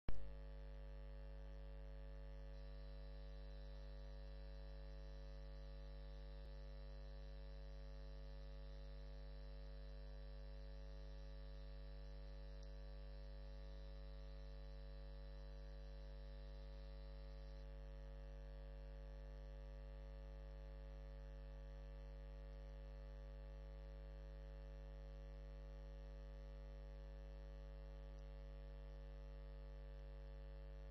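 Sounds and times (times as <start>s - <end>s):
electrical mains hum: 2.3s - 17.8s
faint high whine: 2.6s - 18.5s.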